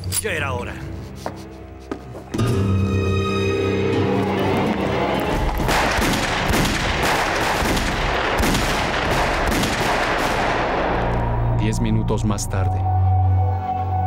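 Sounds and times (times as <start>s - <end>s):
background music: 0.0s - 14.0s
rapid gunfire: 5.7s - 10.9s.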